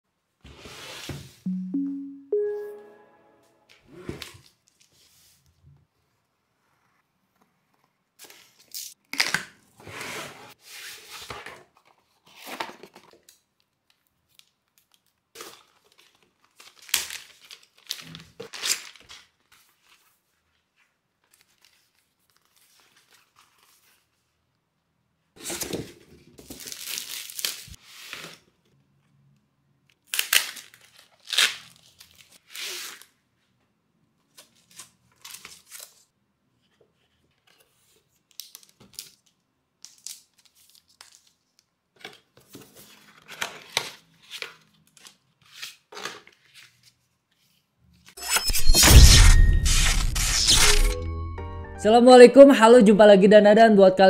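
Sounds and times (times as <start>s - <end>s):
cardboard and paper rustling and tearing: 10.0s - 13.4s, 14.3s - 24.3s, 25.4s - 28.4s, 34.3s - 36.0s, 36.9s - 47.6s
box tape being cut: 48.2s - 51.0s.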